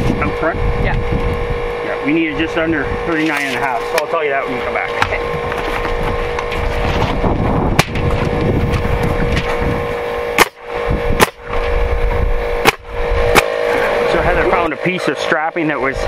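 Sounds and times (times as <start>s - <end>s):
steady motor hum: 0.0s - 16.0s
nail gun shots: 7.8s - 8.0s, 10.4s - 11.6s, 12.6s - 13.6s.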